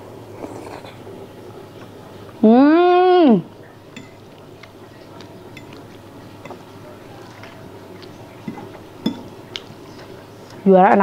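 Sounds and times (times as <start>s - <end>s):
person chewing: 0.3s - 1.1s, 3.5s - 10.6s.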